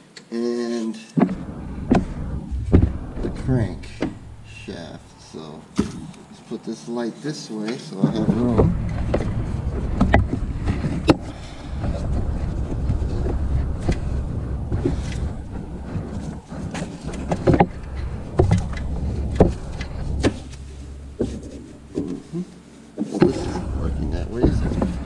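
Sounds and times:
drive belt rumbling and scraping: 1.2s - 6.6s, 7.9s - 25.0s.

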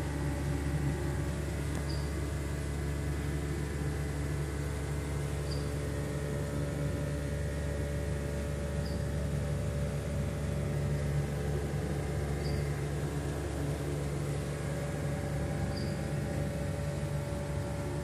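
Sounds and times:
electric pump motor humming: 0.0s - 18.0s.

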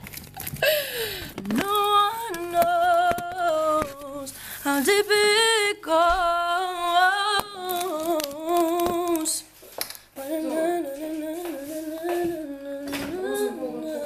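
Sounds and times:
woman humming: 0.6s - 4.4s, 10.2s - 14.0s.

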